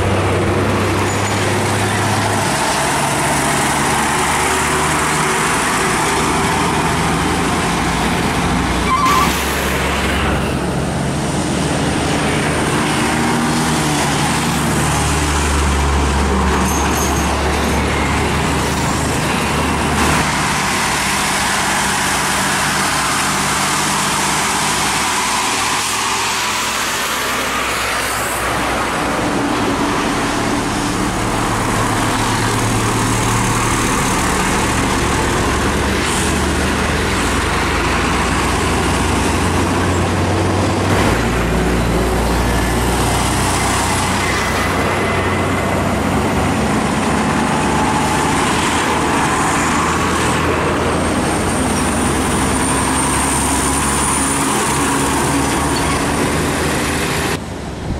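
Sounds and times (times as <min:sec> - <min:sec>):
tyre noise roar: 0:00.0 - 0:57.9
vehicle engines passing: 0:00.0 - 0:57.9.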